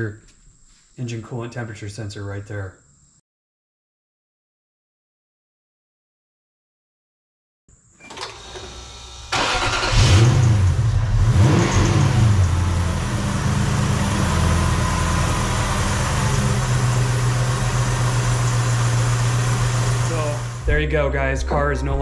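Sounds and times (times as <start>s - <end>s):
engine cranking on starter: 8.0s - 12.6s
engine revving and idling: 8.8s - 20.8s.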